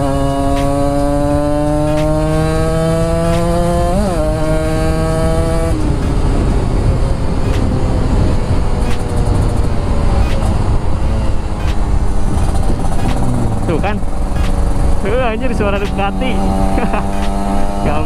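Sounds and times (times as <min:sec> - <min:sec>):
motorcycle engine revving: 0:00.0 - 0:18.0
wind noise: 0:00.0 - 0:18.0
sharp clicks: 0:00.5 - 0:00.8, 0:03.2 - 0:03.6, 0:07.4 - 0:14.9, 0:15.6 - 0:16.2, 0:16.9 - 0:17.5.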